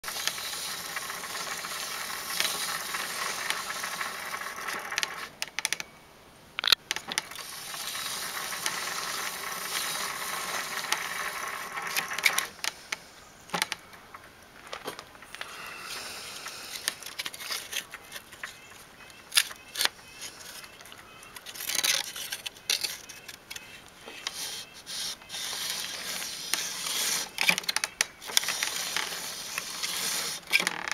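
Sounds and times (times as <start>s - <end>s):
bicycle pedals and chain clicking: 0.0s - 5.8s, 7.2s - 12.7s, 21.3s - 30.9s
bicycle chain freewheel ticking: 0.1s - 5.3s, 7.4s - 12.2s.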